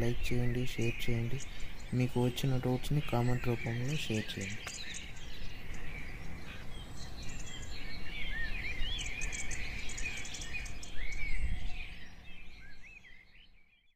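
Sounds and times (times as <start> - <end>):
small birds chirping: 0.0 - 13.9.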